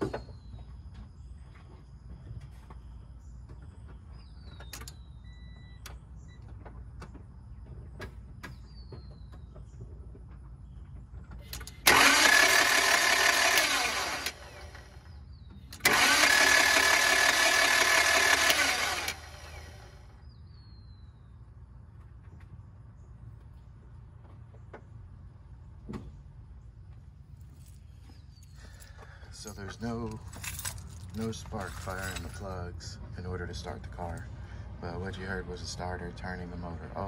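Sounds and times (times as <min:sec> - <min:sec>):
starter motor cranking engine: 0:11.4 - 0:20.2.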